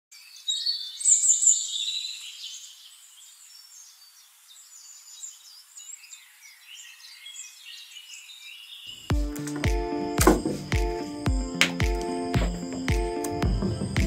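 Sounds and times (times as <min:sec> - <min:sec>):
birds chirping and whistling: 0:00.2 - 0:02.9.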